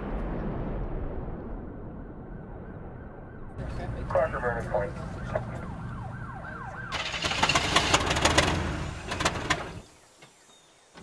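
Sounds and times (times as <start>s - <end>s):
siren wailing: 1.9s - 7.5s
car engine rumbling: 3.6s - 10.2s
loud rushing rattling clatter: 6.9s - 9.9s.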